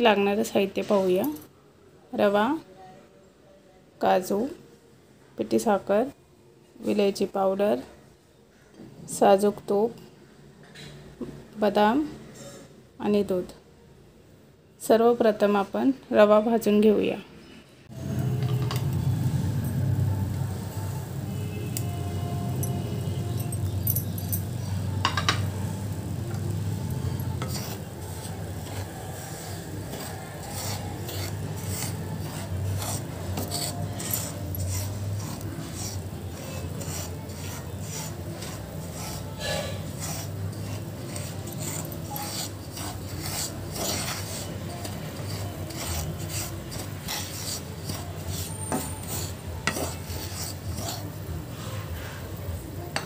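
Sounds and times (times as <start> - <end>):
spatula scraping semolina in pan: 18.2 - 52.4.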